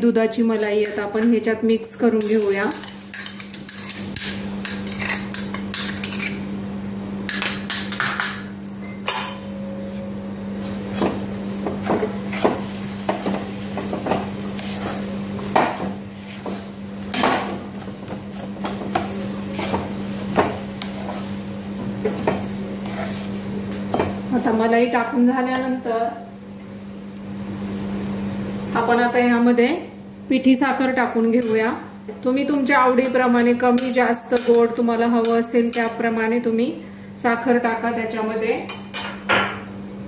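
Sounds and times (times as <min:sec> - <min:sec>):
wooden spatula scraping a metal pan: 0:22.0 - 0:23.4.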